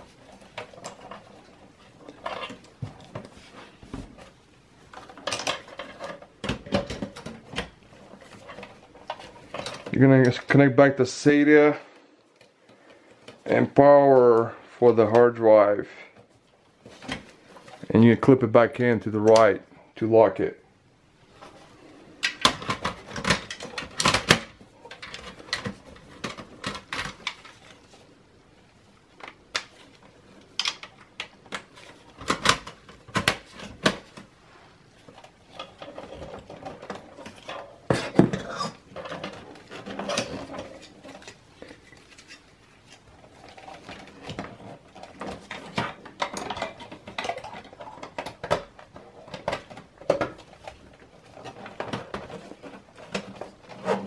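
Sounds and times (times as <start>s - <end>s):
plastic connectors clicking and rattling: 35.0s - 54.0s.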